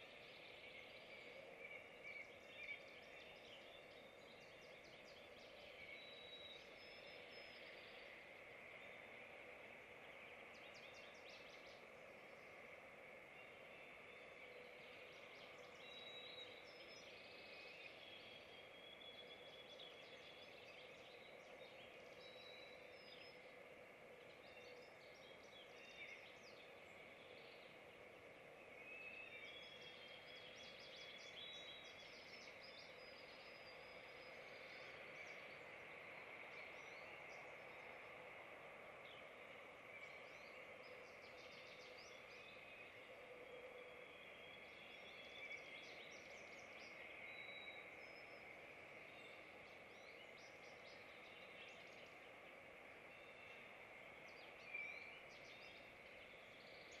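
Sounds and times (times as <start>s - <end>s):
songbirds chirping and whistling: 0.0s - 57.0s.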